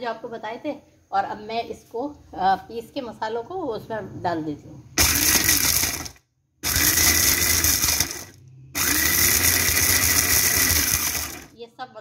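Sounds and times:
electric chopper grinding spices: 0:05.0 - 0:11.5.

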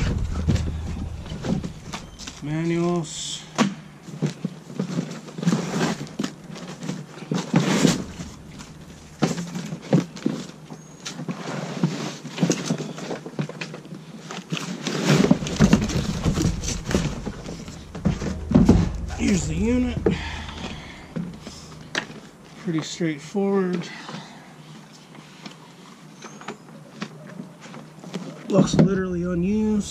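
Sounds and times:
low rumble: 0:00.0 - 0:03.5, 0:07.8 - 0:09.6, 0:15.4 - 0:22.5, 0:28.8 - 0:29.9.

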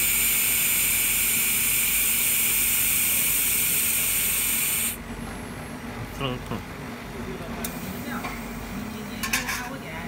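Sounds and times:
laser welder hissing: 0:00.0 - 0:05.0.

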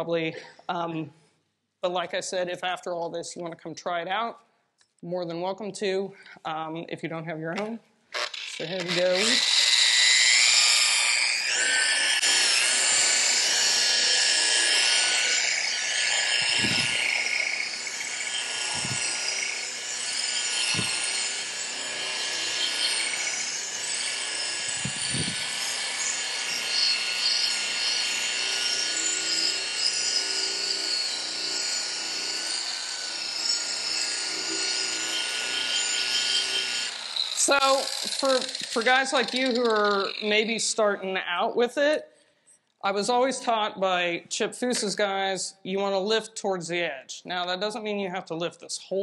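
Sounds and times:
rotary polisher whine: 0:08.2 - 0:40.6.

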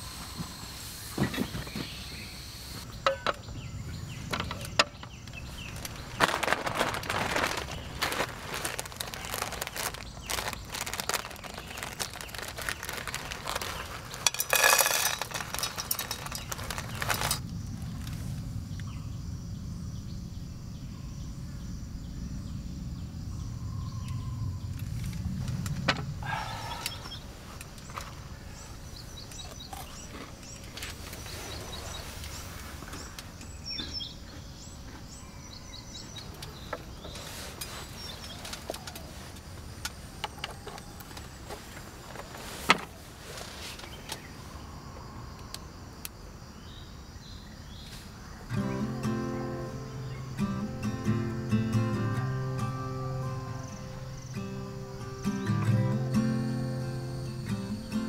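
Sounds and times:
faint chirps: 0:15.5 - 0:39.4.

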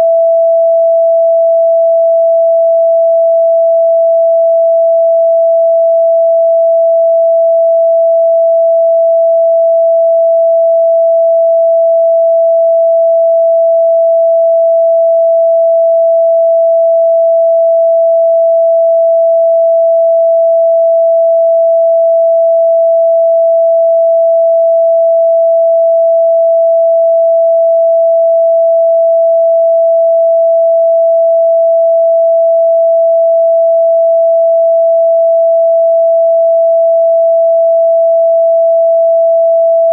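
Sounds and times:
steady sine tone: 0:00.0 - 0:39.9.

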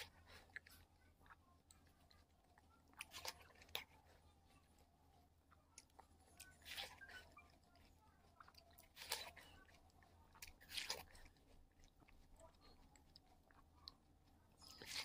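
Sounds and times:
wet chewing clicks: 0:00.0 - 0:15.0
crunching frozen watermelon: 0:07.8 - 0:12.9.

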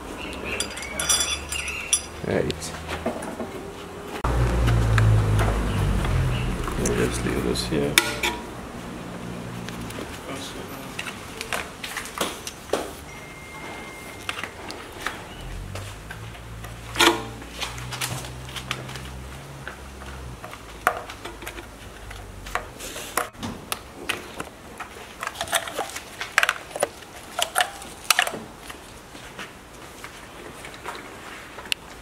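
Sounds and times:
metal clink with short ring: 0:00.5 - 0:02.2.

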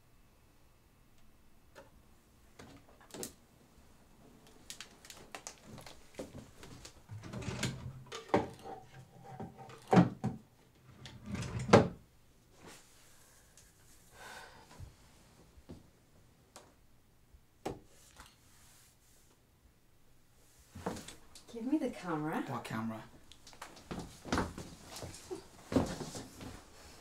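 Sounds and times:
wooden drawer sliding and knocking: 0:07.1 - 0:12.0.

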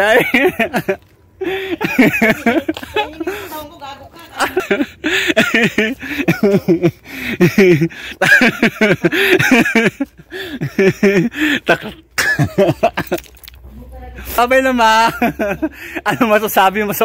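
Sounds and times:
laughter: 0:00.0 - 0:03.5, 0:04.3 - 0:13.4, 0:15.0 - 0:16.4.

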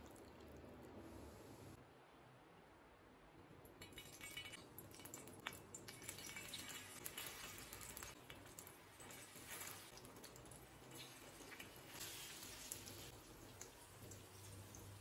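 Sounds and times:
oil crackling on a griddle: 0:03.8 - 0:15.0.

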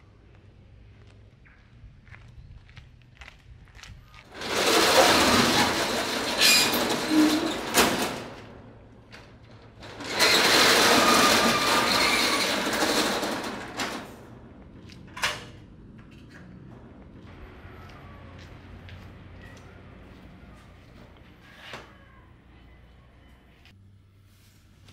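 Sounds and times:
steel roller shutter rattling: 0:04.3 - 0:15.6.

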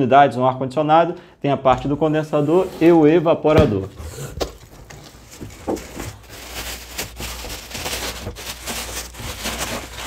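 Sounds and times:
cardboard and plastic rustling: 0:03.7 - 0:10.0.

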